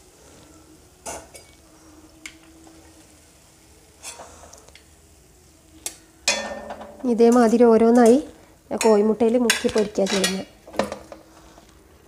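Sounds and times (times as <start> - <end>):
metal utensils clinking: 6.3 - 11.2.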